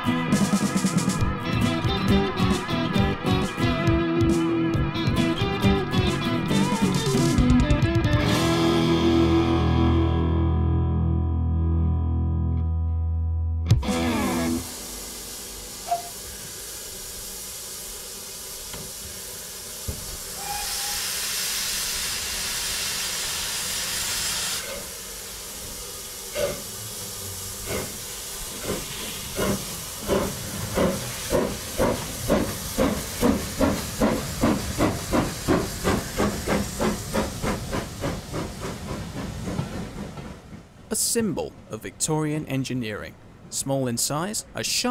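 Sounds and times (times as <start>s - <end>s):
steam locomotive exhaust beats: 0.0s - 9.5s, 13.8s - 40.8s
hissing steam: 13.8s - 40.2s.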